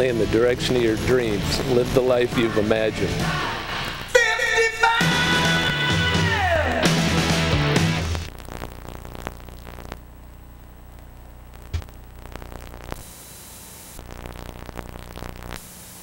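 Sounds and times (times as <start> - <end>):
electrical hum: 8.3 - 16.0.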